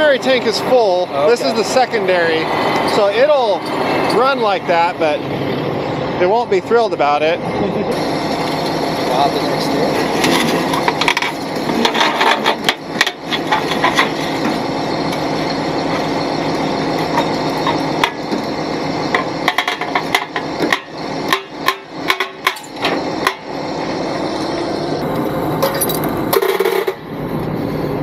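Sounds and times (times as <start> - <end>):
truck engine running: 0.0 - 28.0
metal clanks and knocks: 9.9 - 15.3, 16.9 - 18.5, 19.1 - 23.5, 25.6 - 27.1.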